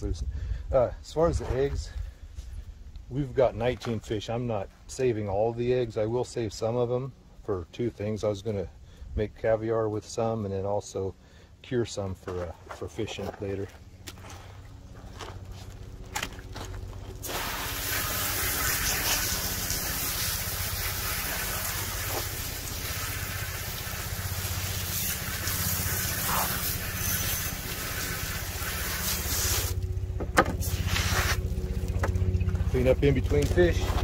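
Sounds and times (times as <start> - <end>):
steady low hum: 0.0 - 34.0
hose nozzle spraying water: 17.2 - 33.0.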